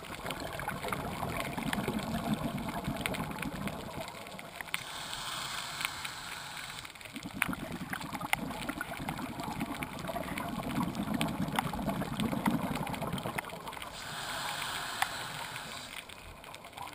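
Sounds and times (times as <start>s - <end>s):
exhaled bubbles underwater: 0.0s - 16.9s
diver breathing through regulator: 4.8s - 7.0s, 13.9s - 16.1s.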